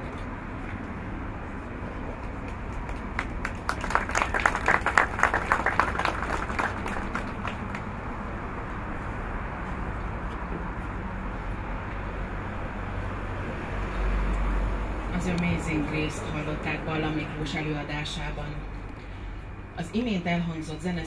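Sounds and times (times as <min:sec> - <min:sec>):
low background hum: 0:00.0 - 0:21.0
audience clapping: 0:02.5 - 0:08.0.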